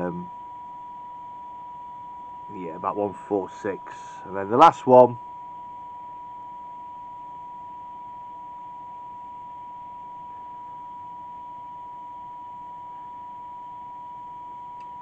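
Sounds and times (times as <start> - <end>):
radio hiss: 2.5 - 5.2.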